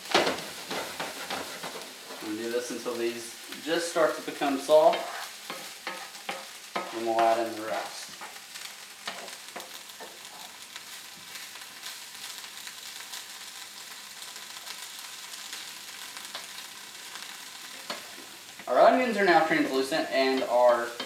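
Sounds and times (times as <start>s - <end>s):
wooden spatula scraping pan: 0.0s - 2.8s, 4.4s - 7.4s
vegetables sizzling in frying pan: 0.0s - 21.0s.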